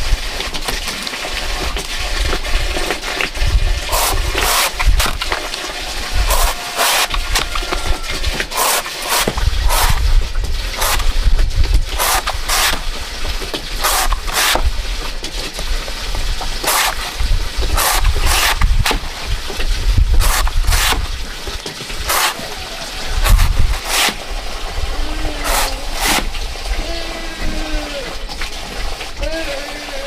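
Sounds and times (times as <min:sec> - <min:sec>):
blade cutting banana stem: 0:03.9 - 0:05.4, 0:06.2 - 0:07.7, 0:08.5 - 0:10.0, 0:10.7 - 0:11.2, 0:11.9 - 0:12.9, 0:13.8 - 0:14.7, 0:16.6 - 0:19.1, 0:20.2 - 0:21.1, 0:22.0 - 0:22.5, 0:23.2 - 0:24.2, 0:25.4 - 0:26.3.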